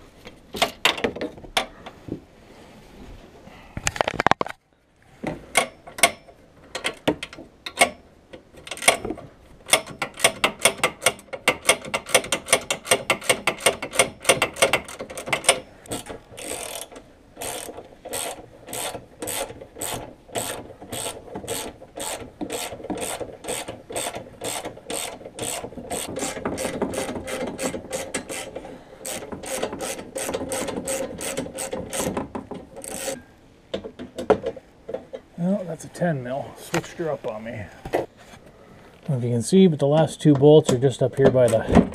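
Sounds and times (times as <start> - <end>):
socket ratchet clicking: 9.7 - 33.2.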